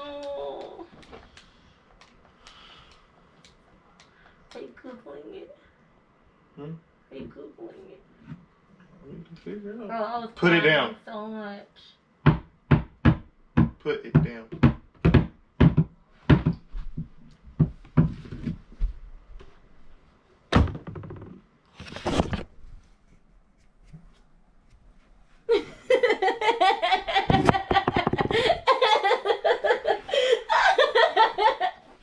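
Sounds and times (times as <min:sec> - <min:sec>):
high-pitched laughter: 0:25.5 - 0:31.9.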